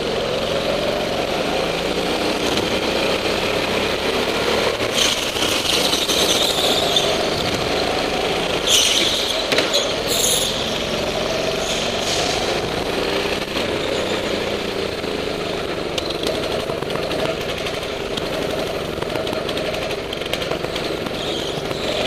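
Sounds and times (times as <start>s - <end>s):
go-kart engines racing: 0.0s - 22.0s
tyre squeals: 4.9s - 7.5s, 8.6s - 10.9s, 21.0s - 22.0s.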